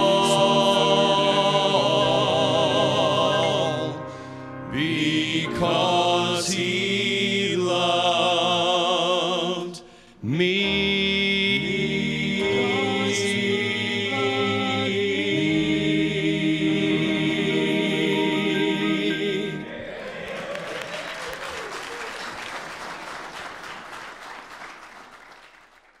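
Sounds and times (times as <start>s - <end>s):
men's vocal quartet singing: 0.0s - 20.3s
congregation applause: 19.7s - 26.0s.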